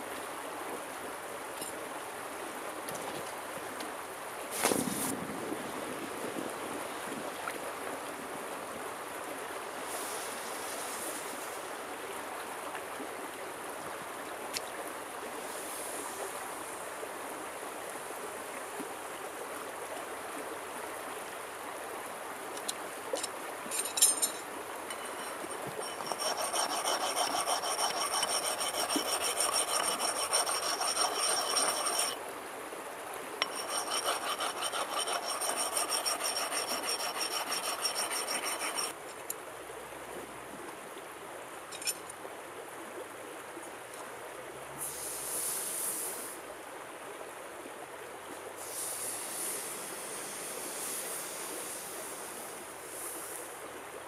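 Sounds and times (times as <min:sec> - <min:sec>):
stream flowing: 0:00.0 - 0:04.6, 0:05.7 - 0:44.6
sharp clinks: 0:23.7 - 0:26.0
hand tool rasping on steel: 0:23.8 - 0:32.2, 0:33.4 - 0:39.0.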